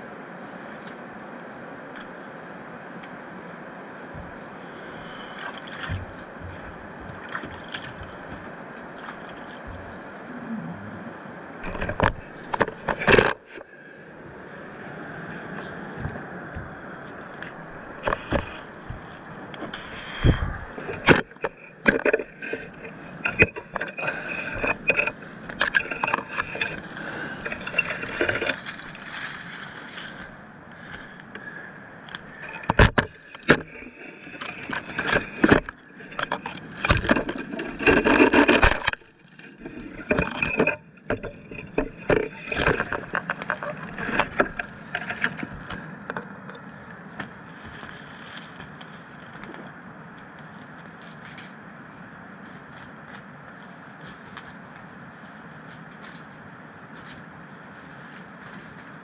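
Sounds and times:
brush scraping: 0:03.9 - 0:10.3, 0:16.0 - 0:31.3, 0:47.1 - 0:49.8, 0:50.4 - 0:59.0.

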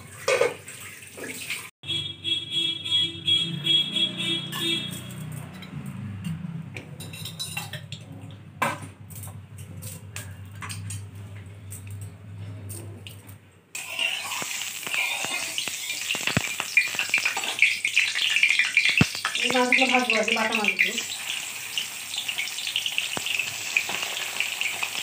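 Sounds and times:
utensils clinking: 0:04.5 - 0:18.0
fish sizzling in hot oil: 0:13.8 - 0:25.0.

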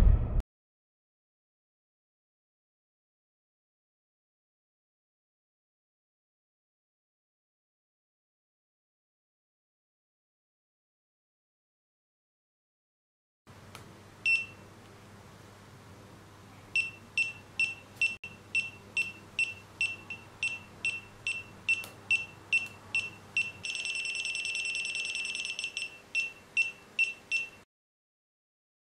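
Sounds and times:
continuous alarm tone: 0:16.8 - 0:27.6.

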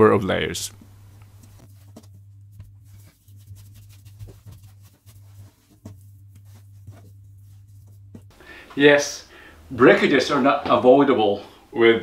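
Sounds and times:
steady low hum: 0:00.0 - 0:12.0
hands tapping and rubbing dough: 0:01.2 - 0:08.4.

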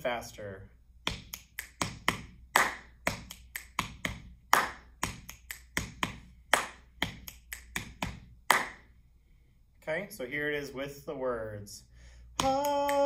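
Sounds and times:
hand claps: 0:01.0 - 0:08.9, 0:12.3 - 0:13.0
finger snaps: 0:01.1 - 0:08.8, 0:12.3 - 0:13.0.

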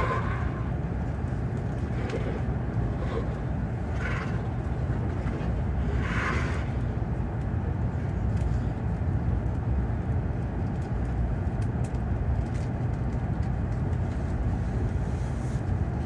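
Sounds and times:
train cabin low rumble: 0:00.0 - 0:16.0.

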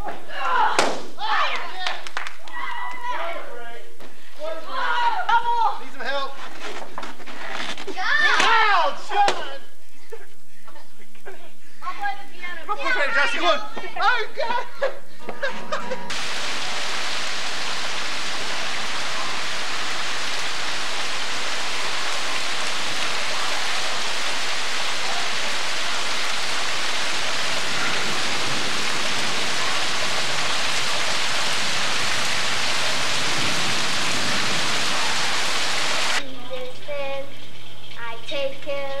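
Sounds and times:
steady rain falling: 0:16.1 - 0:36.2.

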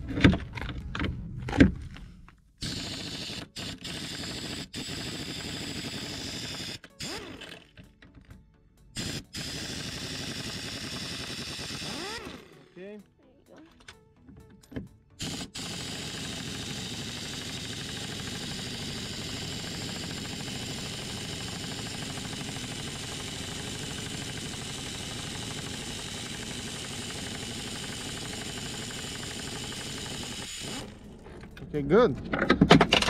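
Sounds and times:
pneumatic impact wrench hammering: 0:02.6 - 0:07.9, 0:09.0 - 0:12.8, 0:14.7 - 0:31.6.

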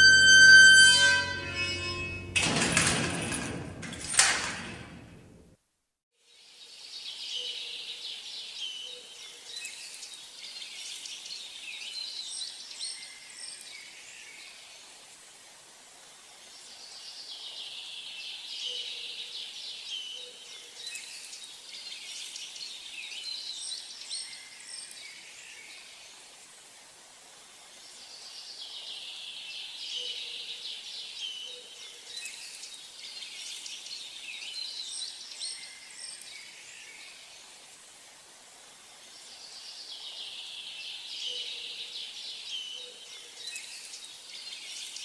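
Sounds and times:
music with loud strokes: 0:00.0 - 0:02.4
faint outdoor hiss: 0:05.0 - 0:45.0.

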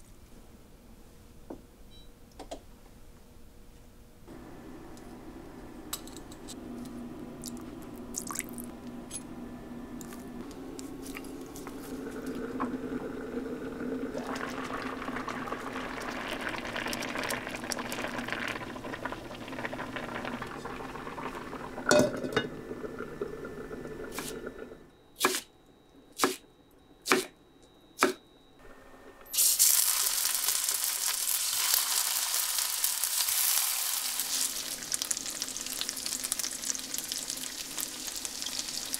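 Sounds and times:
steady low hum: 0:03.0 - 0:29.1
stew simmering and stirred: 0:04.3 - 0:25.0
tofu sizzling in hot oil: 0:29.4 - 0:38.9.

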